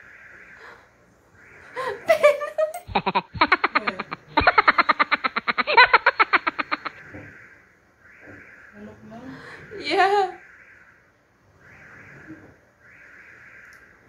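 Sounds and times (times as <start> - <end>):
woman laughing hard: 1.8 - 7.0.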